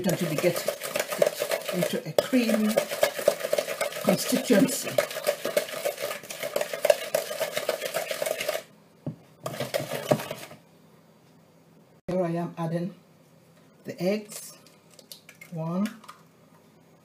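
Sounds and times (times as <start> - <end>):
wooden spoon beating in plastic bowl: 0.0 - 10.6.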